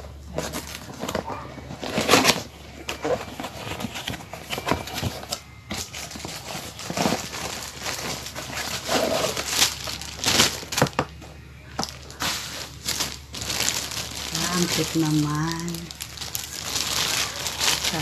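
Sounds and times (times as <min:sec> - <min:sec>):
cardboard box being handled: 0:00.3 - 0:11.0.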